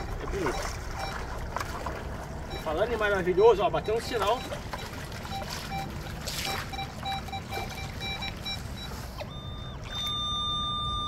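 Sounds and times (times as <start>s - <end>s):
metal detector beeps: 0.0s - 1.2s, 2.5s - 5.9s, 6.5s - 11.0s
shallow stream running: 0.0s - 11.0s
metal detector steady tone: 6.5s - 11.0s.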